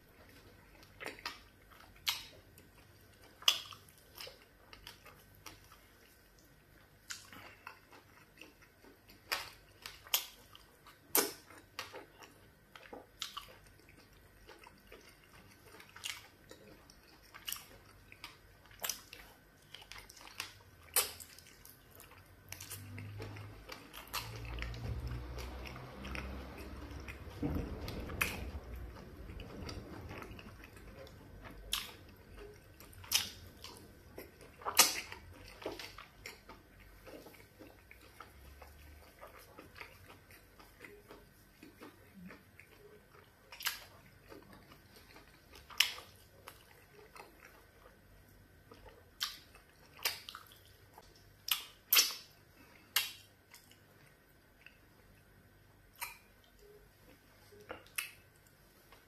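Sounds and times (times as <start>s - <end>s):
chewing and wet mouth smacks: 0.0s - 55.3s, 55.9s - 59.0s
low rumble: 24.2s - 32.3s.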